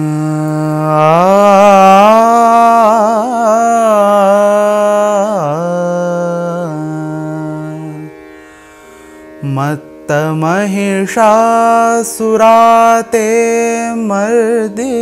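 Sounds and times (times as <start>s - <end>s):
man singing without words: 0.0s - 8.1s, 9.4s - 15.0s.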